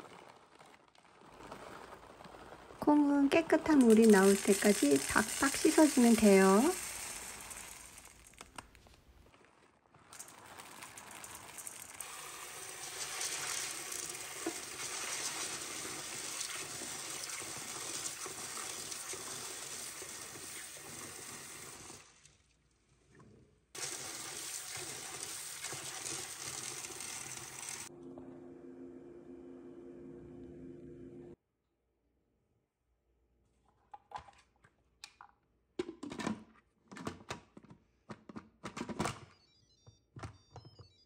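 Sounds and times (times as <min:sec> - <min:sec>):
beans scrubbed by hand: 0:00.0 - 0:21.9
tap water running into colander: 0:03.1 - 0:08.4, 0:10.2 - 0:22.3, 0:23.8 - 0:27.9.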